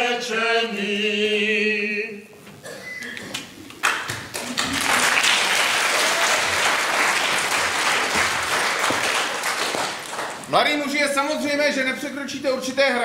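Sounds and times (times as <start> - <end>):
audience applause: 3.7 - 10.5.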